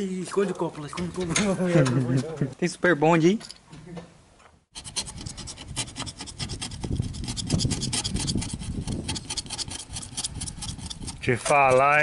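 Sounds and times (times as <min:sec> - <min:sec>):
scraping on window glass: 0:04.7 - 0:12.0.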